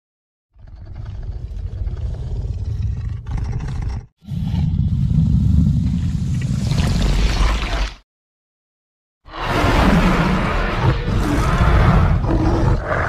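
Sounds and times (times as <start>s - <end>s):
deep creature growls: 0.5s - 6.0s, 9.3s - 13.0s.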